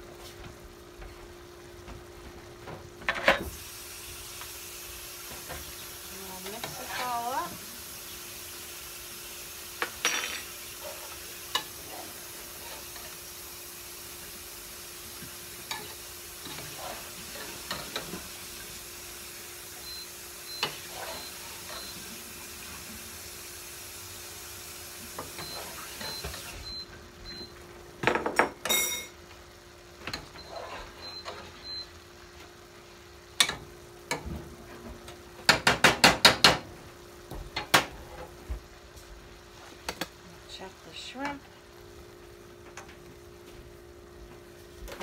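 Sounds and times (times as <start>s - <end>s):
shrimp sizzling in skillet: 3.4s - 27.6s.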